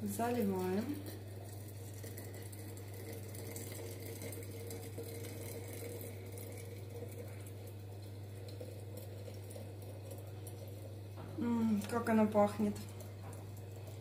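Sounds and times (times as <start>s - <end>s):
water pouring into glass jar: 0.0s - 11.2s.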